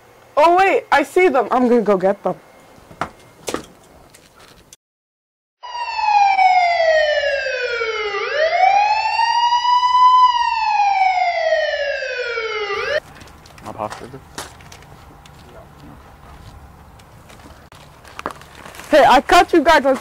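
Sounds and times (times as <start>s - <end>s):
siren wailing: 5.6s - 13.0s.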